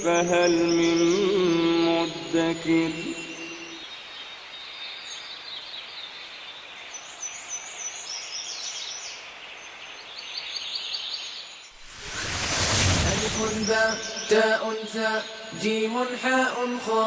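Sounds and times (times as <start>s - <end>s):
birds chirping: 5.0s - 15.6s.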